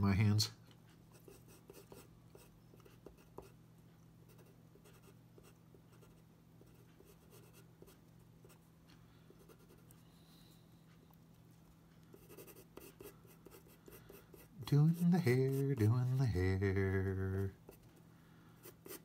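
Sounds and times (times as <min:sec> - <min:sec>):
low steady hum: 0:00.0 - 0:19.0
pencil scratching on paper: 0:01.1 - 0:03.6, 0:04.3 - 0:08.6, 0:09.4 - 0:09.9, 0:12.1 - 0:16.4, 0:18.6 - 0:19.0.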